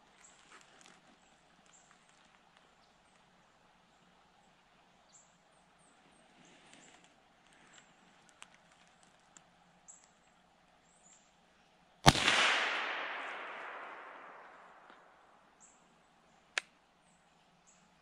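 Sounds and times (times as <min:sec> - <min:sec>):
rifle shot echoing: 0:12.0 - 0:15.5.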